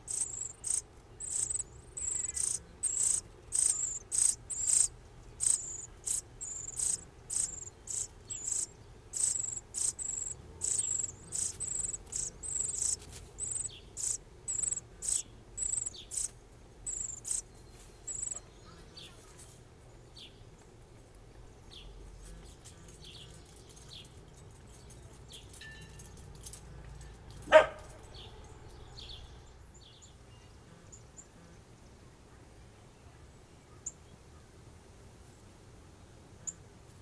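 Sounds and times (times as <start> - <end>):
high bird chirps: 0.0 - 16.3, 16.9 - 19.2
loud dog bark: 27.5 - 27.9.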